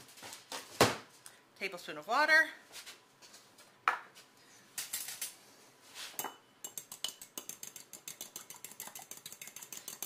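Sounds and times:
fork clinking in ceramic bowl: 6.2 - 10.0.

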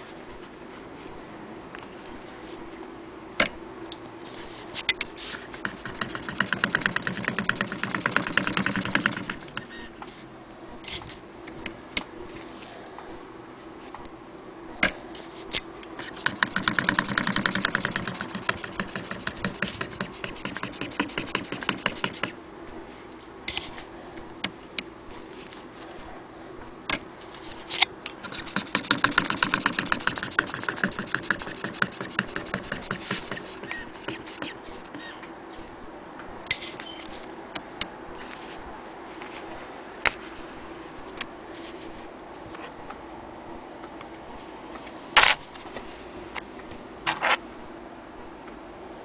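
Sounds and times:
sewing machine clicking: 5.5 - 9.7, 16.1 - 22.3, 28.2 - 34.1.

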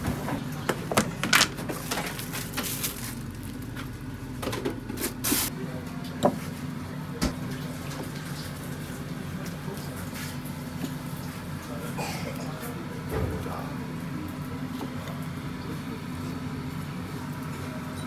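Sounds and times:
kitchen knocks and clatters: 0.0 - 2.7.

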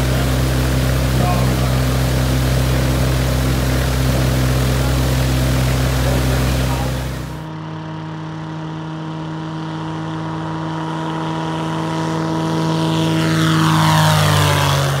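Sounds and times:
light aircraft engine and propeller: 0.0 - 15.0.

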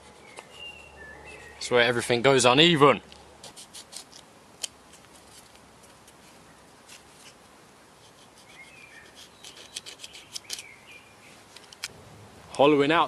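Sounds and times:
faint bird chirps: 0.2 - 1.7, 8.4 - 11.4.

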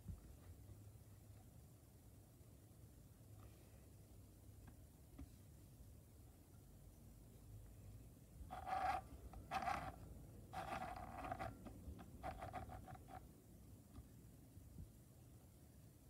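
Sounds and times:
sewing machine stitching: 8.5 - 10.0, 10.6 - 11.6.

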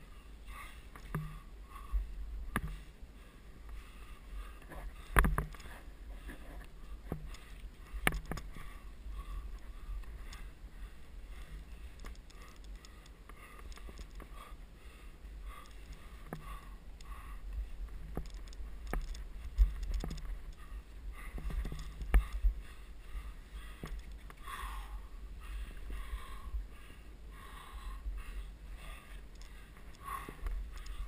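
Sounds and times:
camera rumble and rustle: 0.0 - 31.0
climbing gear clicks on rock: 0.8 - 1.9, 4.6 - 14.6, 15.4 - 25.0, 27.7 - 31.0.

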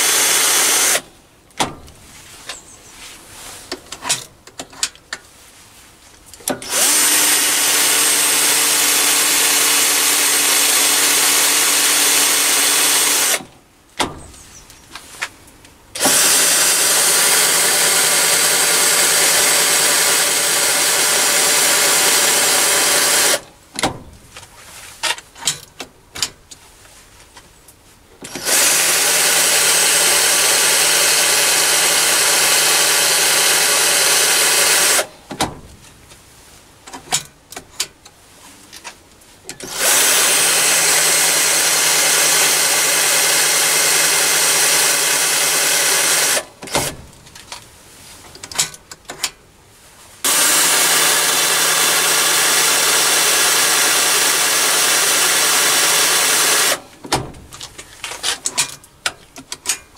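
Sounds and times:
battery drill running: 0.0 - 1.0, 6.6 - 13.4, 16.0 - 23.4, 28.4 - 35.1, 39.6 - 46.4, 50.2 - 56.8.

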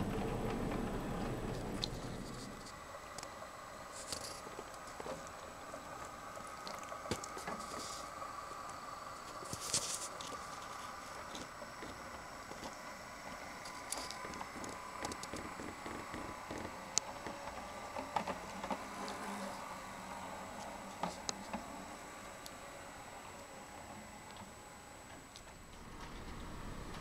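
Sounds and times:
wheels clicking on rails: 0.0 - 8.1, 9.3 - 19.3, 25.2 - 27.0
model train motor hum: 0.0 - 27.0.

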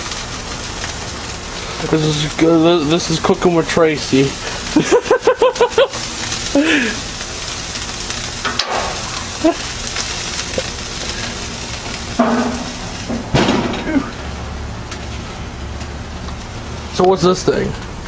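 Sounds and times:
meat sizzling on grill: 0.0 - 18.0
voices: 1.7 - 7.1.

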